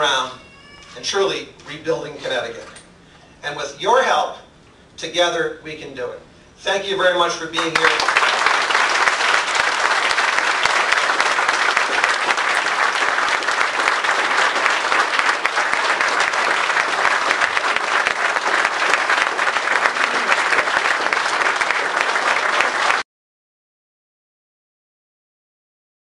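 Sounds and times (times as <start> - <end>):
crowd applauding: 7.6 - 23.0.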